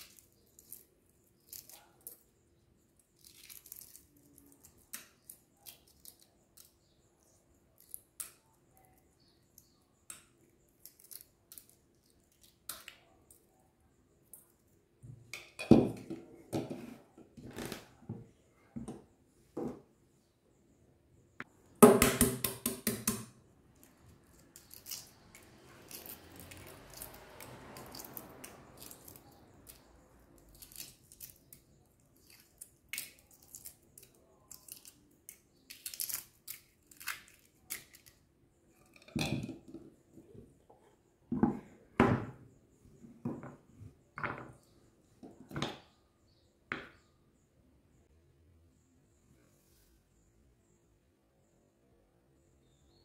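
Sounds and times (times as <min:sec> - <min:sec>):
eggshell crackling while peeled: 0:23.8 - 0:27.2, 0:32.2 - 0:38.1.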